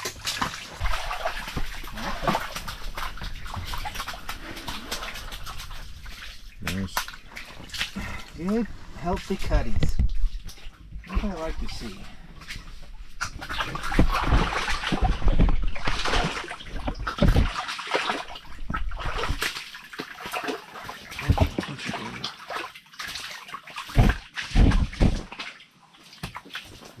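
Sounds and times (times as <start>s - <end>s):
water splashing: 0.0s - 27.0s.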